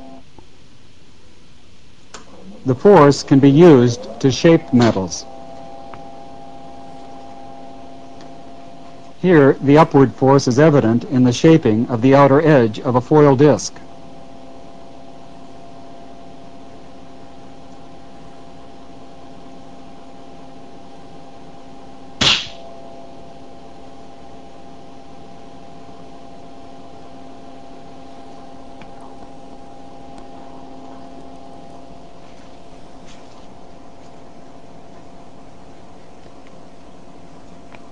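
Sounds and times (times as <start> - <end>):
steady tonal hum: 0.0 - 37.9
loud sharp crack: 22.2 - 22.7.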